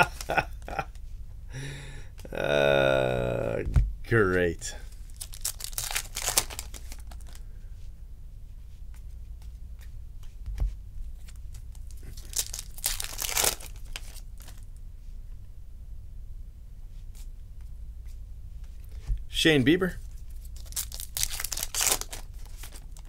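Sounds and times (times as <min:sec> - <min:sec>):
foil wrapper tearing and crinkling: 0:05.1 - 0:07.4, 0:11.8 - 0:14.6, 0:20.4 - 0:23.0.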